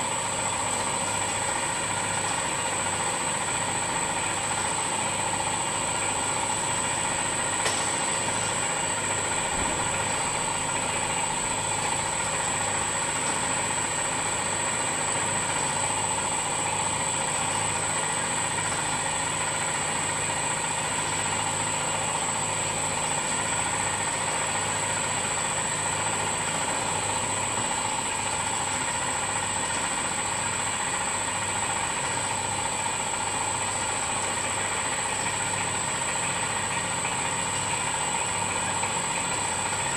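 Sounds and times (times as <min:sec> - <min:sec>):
high-pitched machine whine: 0:00.0 - 0:39.9.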